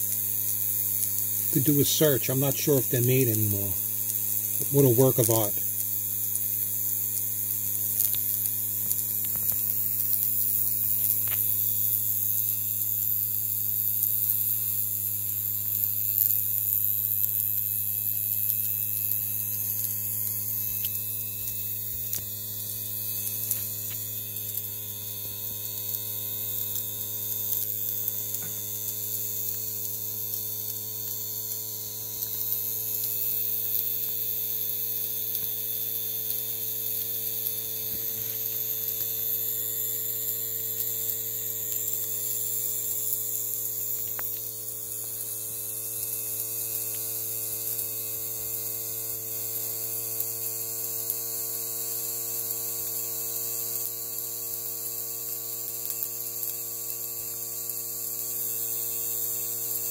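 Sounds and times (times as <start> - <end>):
small steam engine humming: 0.0 - 5.8
steam hissing: 0.0 - 11.7.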